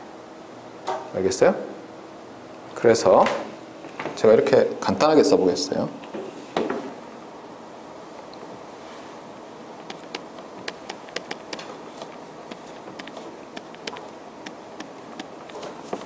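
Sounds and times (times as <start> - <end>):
steady room hum: 0.0 - 16.0
stylus tapping on tablet: 9.8 - 11.7, 12.5 - 15.3.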